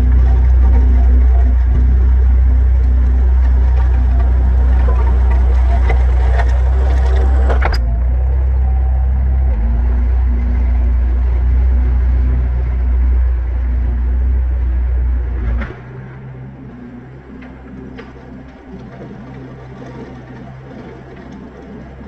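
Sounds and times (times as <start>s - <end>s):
rake drum clattering through gravel: 0.0s - 7.7s
low engine drone: 0.0s - 22.0s.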